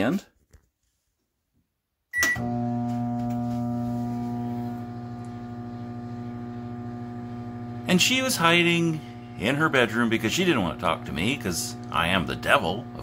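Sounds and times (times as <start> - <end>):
keypad beep: 2.1 - 2.4
microwave oven humming: 2.2 - 13.0.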